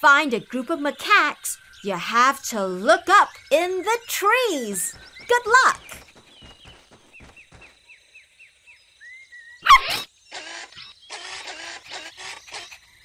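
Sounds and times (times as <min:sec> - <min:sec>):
quick falling chirps: 0:04.6 - 0:07.9, 0:09.6 - 0:13.0
cartoon puppy bark: 0:09.6 - 0:10.1
repeated croaks: 0:09.6 - 0:13.0.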